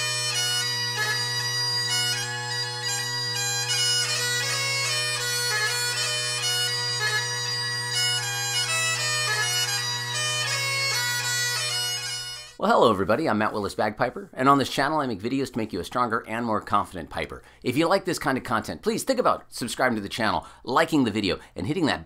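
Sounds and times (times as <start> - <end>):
bagpipes playing: 0.0 - 12.6.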